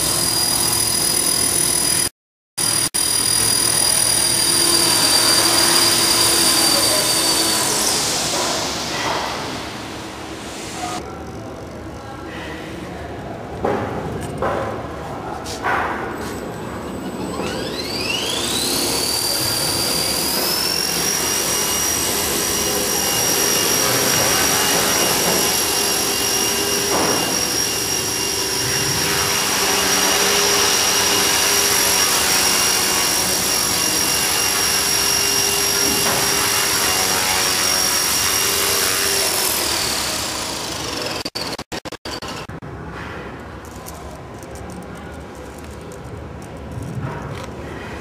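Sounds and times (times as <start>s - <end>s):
rc helicopter motor whine: 0.0s - 10.1s, 17.2s - 42.5s.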